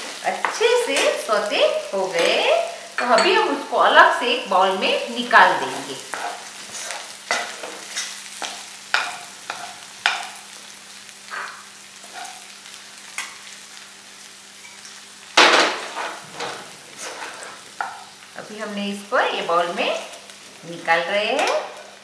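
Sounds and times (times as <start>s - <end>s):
corn sizzling in oil: 0.0s - 22.0s.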